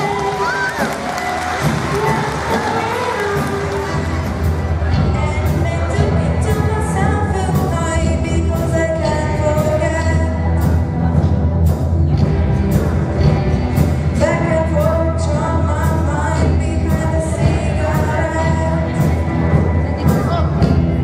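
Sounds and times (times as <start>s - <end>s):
person singing: 0.0s - 11.3s
drum kit steady beat: 0.0s - 21.0s
electric bass: 0.0s - 21.0s.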